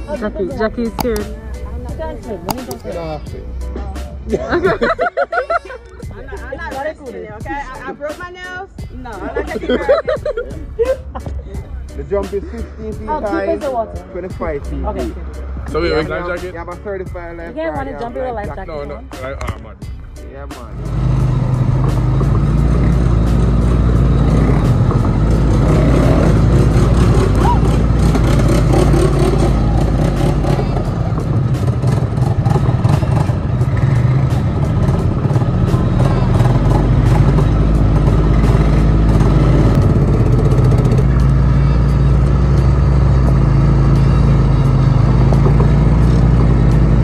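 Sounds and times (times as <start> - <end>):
quad bike engines running: 20.8 - 47.0.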